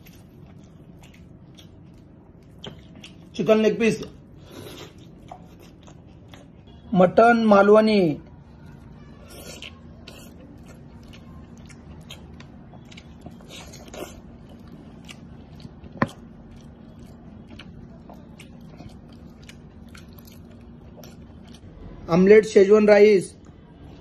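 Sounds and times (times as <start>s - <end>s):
man chewing mouth clicks: 0.0s - 3.4s, 4.4s - 6.7s, 9.3s - 21.8s
steady low hum: 0.0s - 24.0s.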